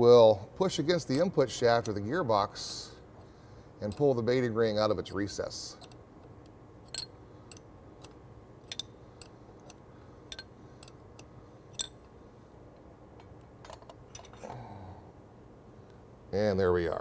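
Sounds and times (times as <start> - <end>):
ratcheting wrench clicks: 5.8 - 6.0, 6.9 - 12.0.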